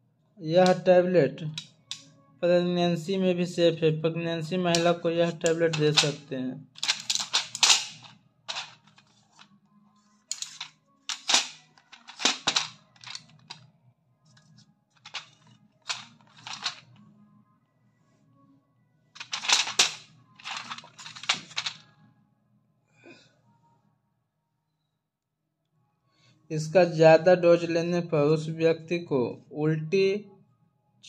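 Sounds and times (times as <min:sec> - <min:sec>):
blister strip crinkling: 0:06.8 - 0:09.0, 0:10.3 - 0:13.6, 0:15.0 - 0:16.8, 0:19.2 - 0:21.7.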